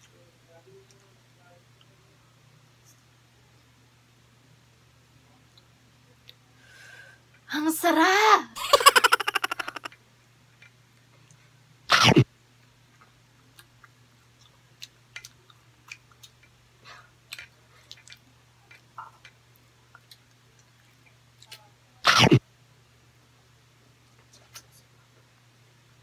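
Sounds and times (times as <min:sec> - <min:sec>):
stuttering laugh: 0:08.6 - 0:10.0
cough-like burst: 0:11.9 - 0:12.2, 0:22.1 - 0:22.4
chewing clicks: 0:13.0 - 0:16.6, 0:17.3 - 0:21.6.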